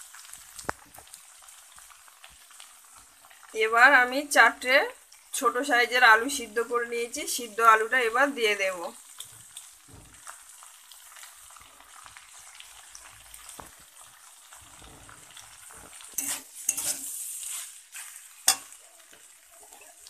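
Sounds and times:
vegetables sizzling in oil: 0.0 - 20.0
metal spatula scraping a pan: 14.5 - 20.0
spatula clacking on pan: 16.2 - 17.1, 18.0 - 20.0.

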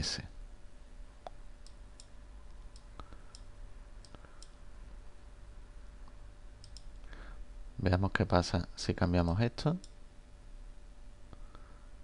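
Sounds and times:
low steady hum: 0.0 - 12.0
computer mouse clicks: 1.2 - 4.6, 6.0 - 7.0.

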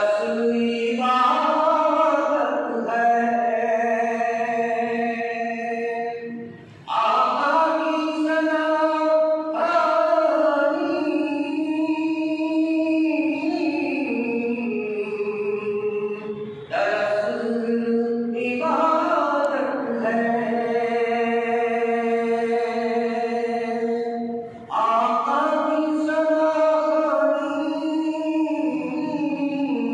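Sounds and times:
man chanting: 0.0 - 29.9.

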